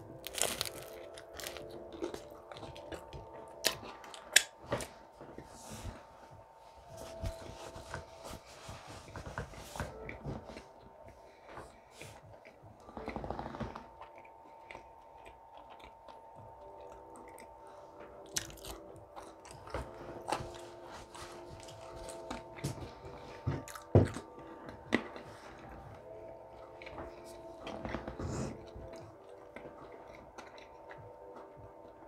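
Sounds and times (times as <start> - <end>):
person chewing: 0.0 - 5.5, 11.8 - 26.0, 26.8 - 31.5
crackles of biting: 0.2 - 4.5, 18.3 - 19.7.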